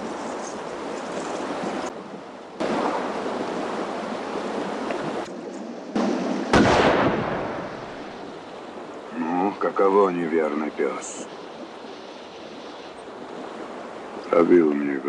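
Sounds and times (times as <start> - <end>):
steady rushing noise: 0.0 - 15.0
rifle shot echoing: 5.9 - 8.2.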